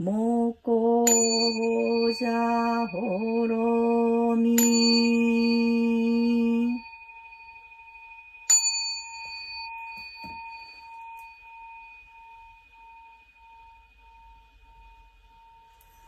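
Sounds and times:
person chanting: 0.0 - 6.8
bowl bell ringing: 1.0 - 16.0.

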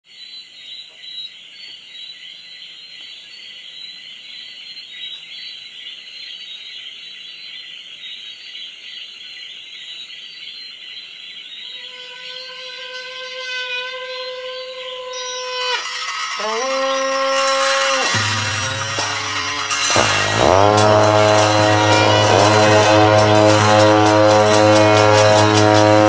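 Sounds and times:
held musical tone: 15.0 - 26.0.

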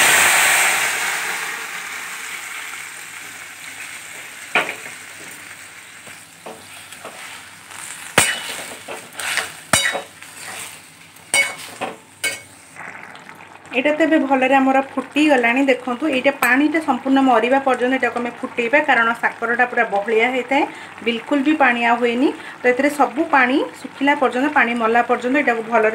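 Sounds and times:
food sizzling in oil: 0.0 - 25.9
metal spatula scraping pan: 6.6 - 12.5.

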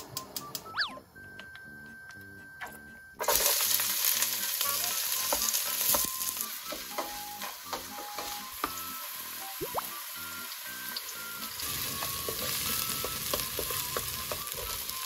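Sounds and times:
onions sizzling in hot oil: 3.2 - 15.0.

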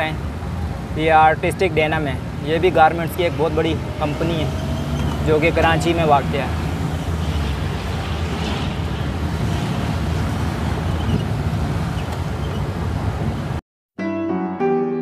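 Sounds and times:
vehicle road and wind noise: 0.0 - 13.6
piano music: 14.0 - 15.0.

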